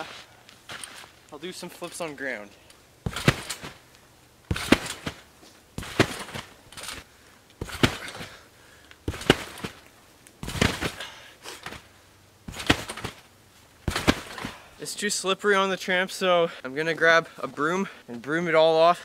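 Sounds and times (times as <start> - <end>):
trampoline landing thumps: 3.0 - 8.4, 9.0 - 14.7.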